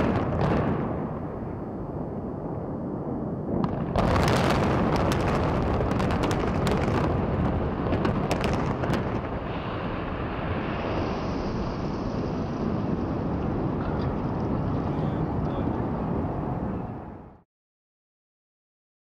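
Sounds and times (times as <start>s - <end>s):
loud explosive blast: 0.0s - 13.8s.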